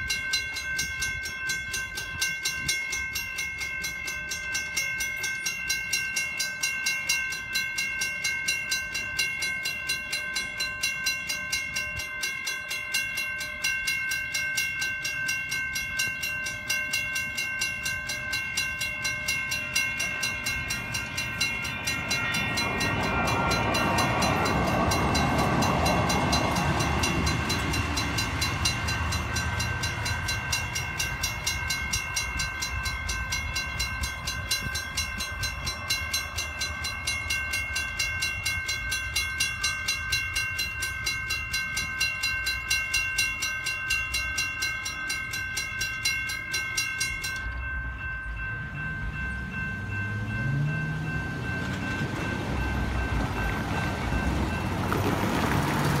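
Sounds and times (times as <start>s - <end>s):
crossing bells ringing: 0.0s - 56.0s
distant crossing bell: 0.0s - 56.0s
car engines driving past: 48.9s - 56.0s.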